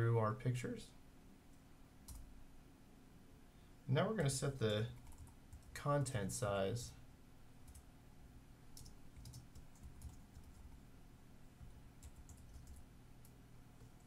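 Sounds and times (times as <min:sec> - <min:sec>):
faint low hum: 0:00.0 - 0:14.0
keyboard typing: 0:04.2 - 0:05.8, 0:08.8 - 0:10.8, 0:11.6 - 0:14.0.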